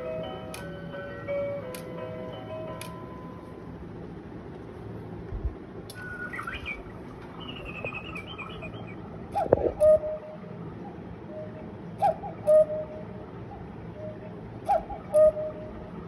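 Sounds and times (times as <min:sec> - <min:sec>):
lower falling bird call: 0:05.9 - 0:10.1
recorded bird chirps: 0:05.9 - 0:16.0.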